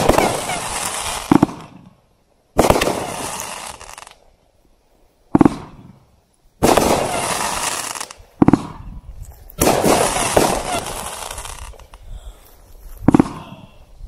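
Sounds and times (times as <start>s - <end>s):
fireworks bangs: 0.0s - 2.0s, 2.6s - 4.2s, 5.3s - 9.0s, 9.6s - 12.0s, 13.0s - 13.6s
rush of fireworks noise: 0.0s - 4.2s, 5.2s - 13.8s.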